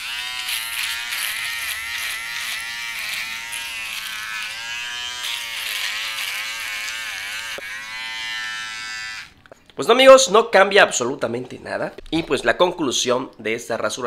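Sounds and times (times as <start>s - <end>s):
electric shaver buzzing: 0.0s - 9.4s.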